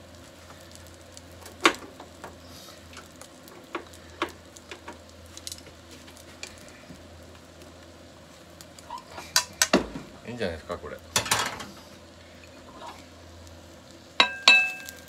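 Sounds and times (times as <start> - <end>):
omelette sizzling in a pan: 0.0 - 15.0
chopsticks tapping a pan: 14.2 - 15.0.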